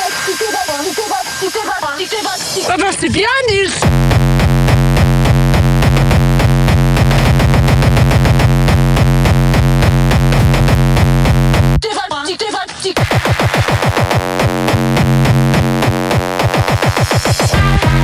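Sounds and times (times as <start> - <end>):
distorted electronic dance music: 0.0 - 18.0
spoken voice sample: 0.3 - 3.9.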